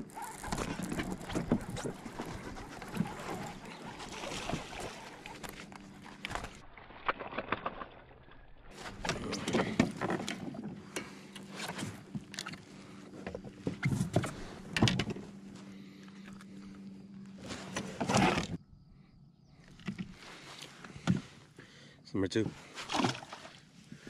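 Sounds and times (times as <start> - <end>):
steady low hum: 0.0 - 6.7, 8.6 - 24.0
knocks and rattles on kayak hull: 0.1 - 5.7.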